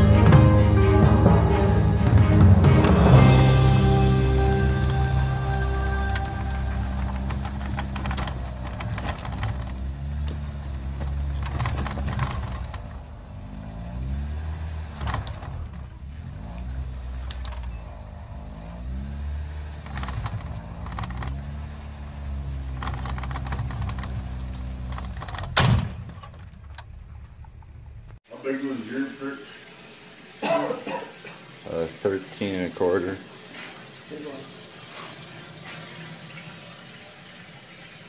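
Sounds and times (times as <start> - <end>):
engine revving: 0.0 - 26.1.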